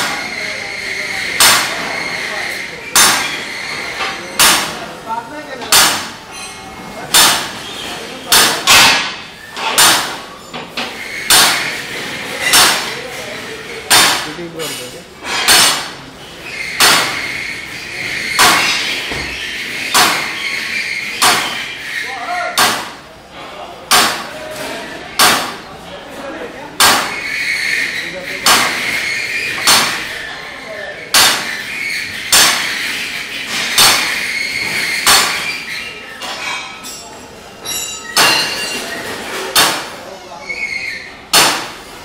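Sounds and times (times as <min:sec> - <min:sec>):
loud sharp bangs: 0:00.0 - 0:00.5, 0:01.2 - 0:02.1, 0:02.9 - 0:05.0, 0:05.7 - 0:06.2, 0:07.1 - 0:10.3, 0:11.0 - 0:13.1, 0:13.8 - 0:14.5, 0:15.3 - 0:16.1, 0:16.7 - 0:17.6, 0:18.2 - 0:23.1, 0:23.8 - 0:24.5, 0:25.1 - 0:25.7, 0:26.8 - 0:30.2, 0:31.1 - 0:35.6, 0:38.2 - 0:40.1, 0:41.3 - 0:42.0
noisy background: 0:00.0 - 0:42.0
metallic clanks with ringing: 0:05.7 - 0:07.3, 0:36.2 - 0:39.7.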